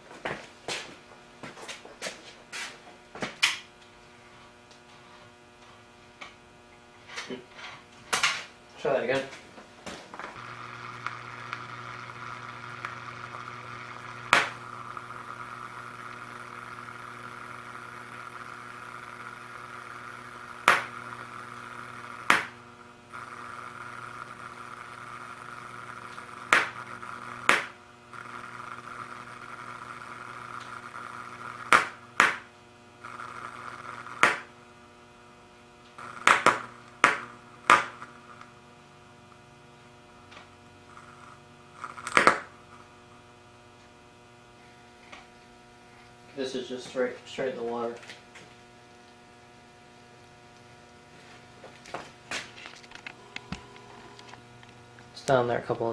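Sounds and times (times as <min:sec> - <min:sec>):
electrical hum: 0:00.0 - 0:55.9
sharp electrical pops and bangs: 0:08.0 - 0:34.6, 0:35.9 - 0:38.6, 0:40.2 - 0:42.8.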